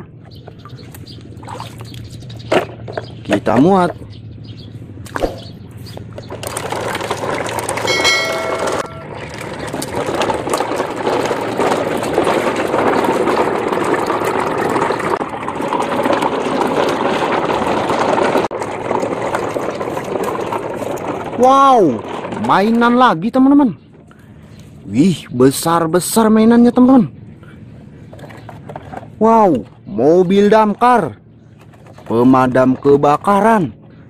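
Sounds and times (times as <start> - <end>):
toy truck rolling through water: 6.0 - 23.5, 28.1 - 30.8.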